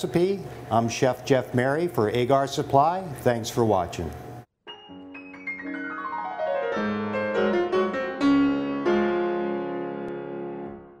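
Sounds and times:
keyboard jingle: 4.6 - 10.8.

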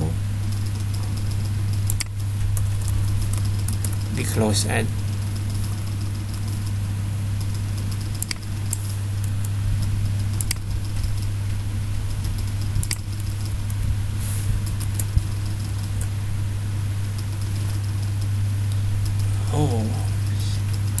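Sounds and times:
low electrical hum: 0.0 - 21.0
keyboard and mouse clicks: 0.5 - 4.2, 7.4 - 9.5, 10.2 - 11.3, 12.2 - 13.6, 14.6 - 16.1.

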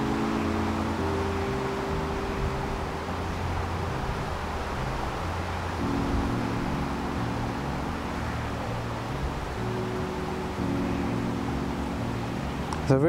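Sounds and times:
soft background music chords: 0.0 - 13.0
steady hiss: 0.0 - 13.0.

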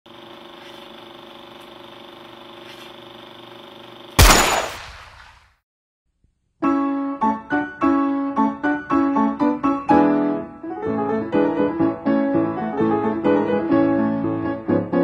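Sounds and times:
steady hum with flutter: 0.1 - 4.5.

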